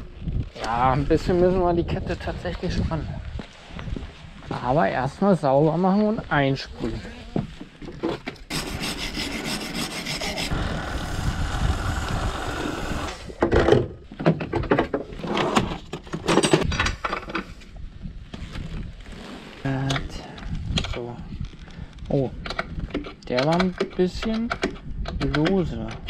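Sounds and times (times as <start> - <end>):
wire brush scrubbing chain: 8.5 - 10.6
aerosol spray hiss: 8.7 - 13.2.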